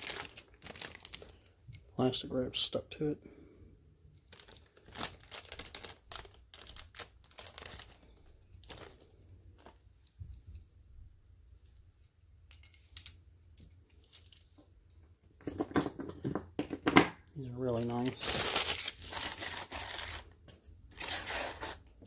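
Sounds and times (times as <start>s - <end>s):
plastic wrap crinkling and tearing: 0.0s - 1.5s, 4.3s - 9.8s, 17.7s - 22.0s.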